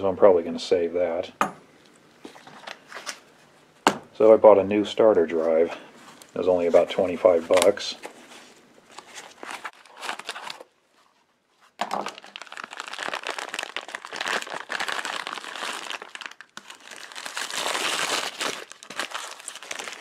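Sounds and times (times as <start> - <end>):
plastic bag crinkling: 6.8 - 10.7, 11.8 - 20.0.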